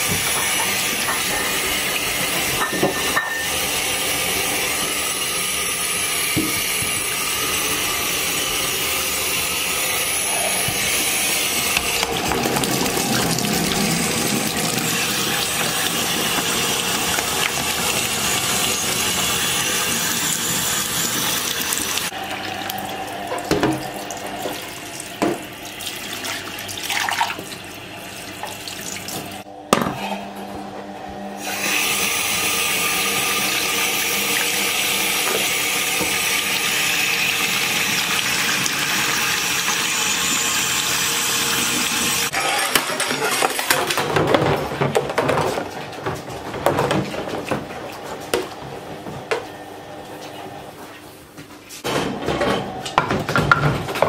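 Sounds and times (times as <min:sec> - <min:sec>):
tap running into sink: 0:06.2 - 0:07.2, 0:11.6 - 0:22.1.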